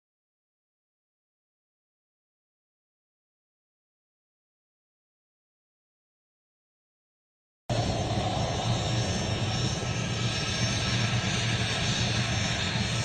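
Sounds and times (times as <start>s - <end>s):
helicopter engine and rotor: 7.7s - 13.0s.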